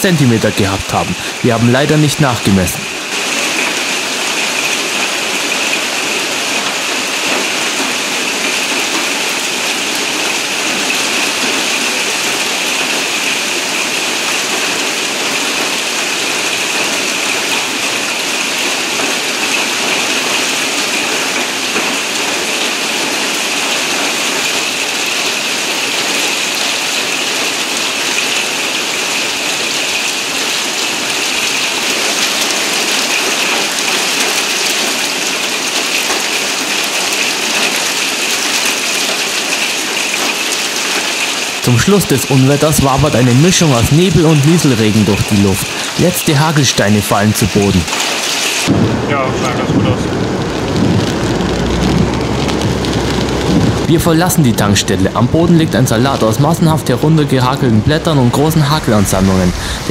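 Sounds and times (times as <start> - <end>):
heavy rain: 0.0 - 59.9
hail on metal roof: 2.8 - 47.1, 47.7 - 56.9, 59.4 - 59.9.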